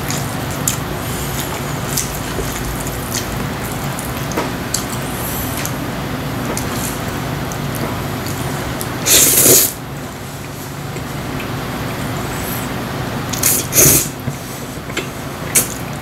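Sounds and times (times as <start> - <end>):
steady low hum: 0.0 - 16.0
person slurping noodles: 9.0 - 9.8.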